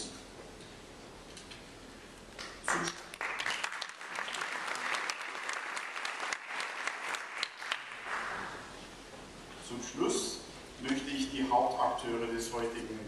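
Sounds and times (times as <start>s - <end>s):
audience applauding: 2.6s - 8.7s.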